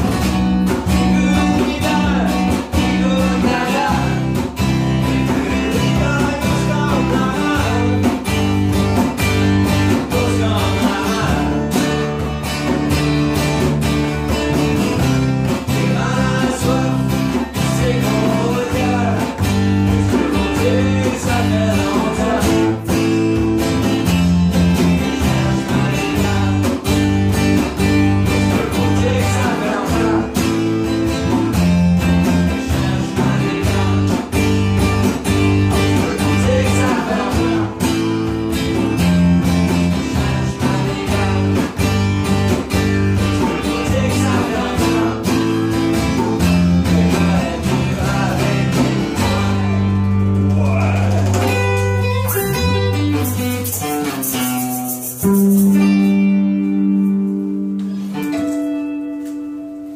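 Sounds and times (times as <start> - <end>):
acoustic bass guitar: 0.0 - 59.9
strummed acoustic guitar: 0.0 - 59.9
djembe hand drum: 50.5 - 51.8.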